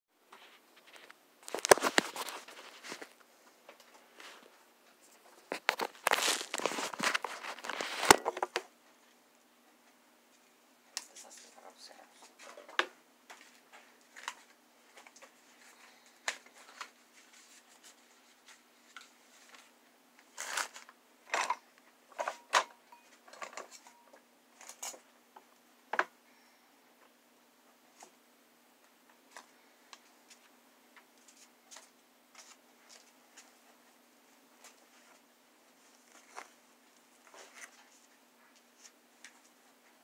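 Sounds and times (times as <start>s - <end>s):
rustles scrapes and clicks: 0.3s - 3.3s, 3.9s - 8.6s, 16.5s - 20.9s.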